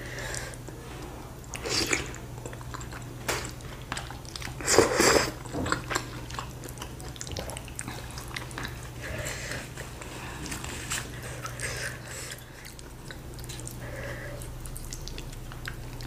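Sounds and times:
chewing and biting: 1.5 - 16.0.

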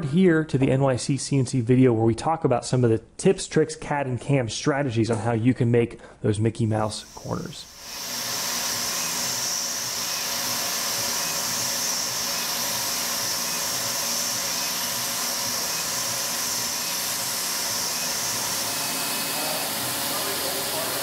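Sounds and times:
milling machine cutting metal: 7.0 - 21.0.

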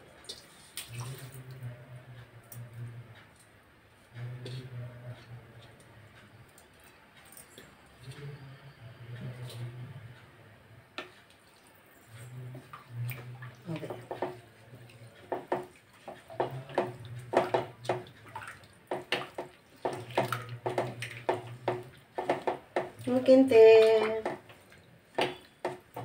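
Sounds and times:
spoon stirring wet rice: 10.9 - 26.0
spoon scraping and tapping pot: 18.9 - 23.0.

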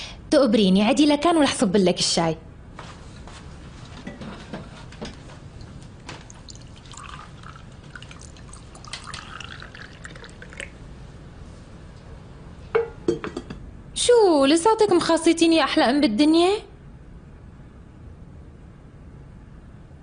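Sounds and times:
tea pouring into a glass: 5.6 - 10.8
tableware clinking: 12.8 - 13.6.

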